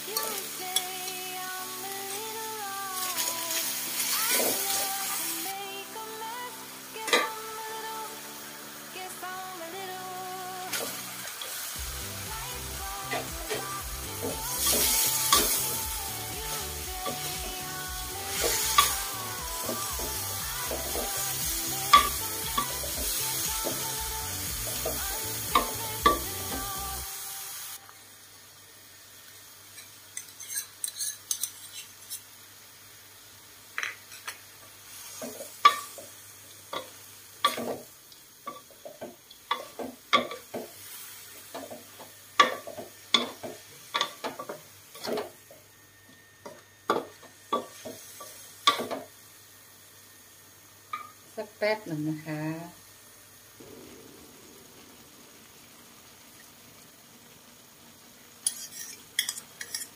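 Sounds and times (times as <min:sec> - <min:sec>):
background music: 0:00.0 - 0:27.8
food sizzling: 0:00.0 - 0:59.9
spatula scraping a metal wok: 0:29.8 - 0:32.3, 0:58.4 - 0:59.9.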